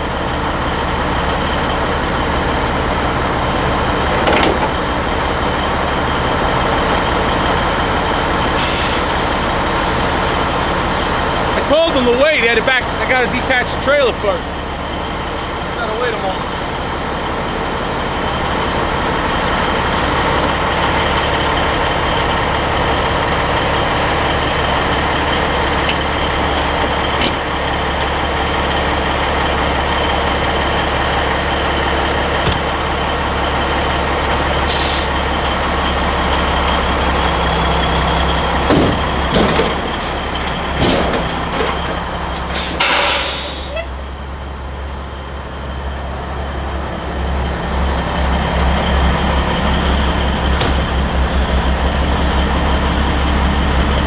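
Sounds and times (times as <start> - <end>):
diesel engine idling: 0.0 - 54.0
air hissing: 8.5 - 13.2, 34.7 - 35.2, 42.4 - 43.9
metal knocks: 38.6 - 41.8.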